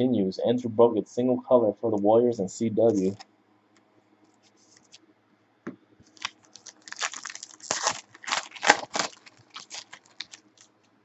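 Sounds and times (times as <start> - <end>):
foil wrapper tearing and crinkling: 6.1 - 10.7.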